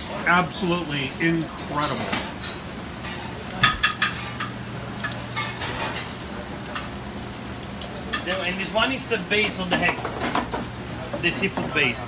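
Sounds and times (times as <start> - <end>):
busy restaurant kitchen hum: 0.0 - 12.0
metal pans and utensils clinking: 1.6 - 7.0, 8.0 - 12.0.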